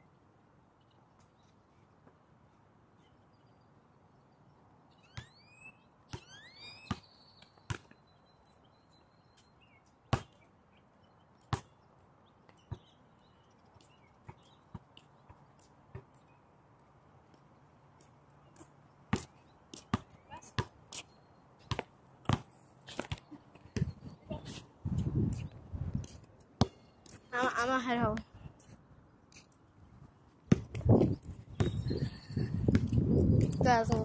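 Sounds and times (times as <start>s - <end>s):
short high squeaks: 5.0s - 7.2s
basketball bouncing: 6.9s - 7.1s, 7.7s - 7.9s, 19.1s - 20.8s, 21.7s - 23.2s, 26.6s - 26.8s, 30.5s - 31.8s.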